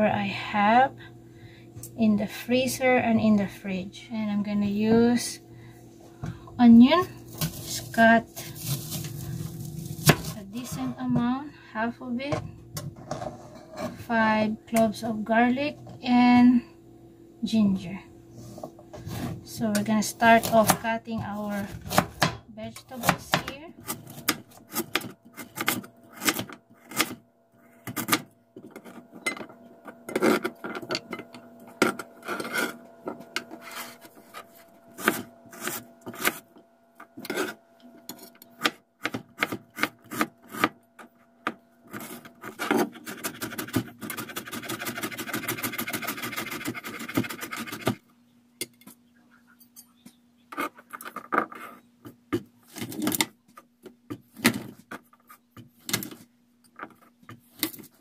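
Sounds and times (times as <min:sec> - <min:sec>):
knife chopping on plastic board: 0:35.0 - 0:36.4, 0:38.6 - 0:40.8.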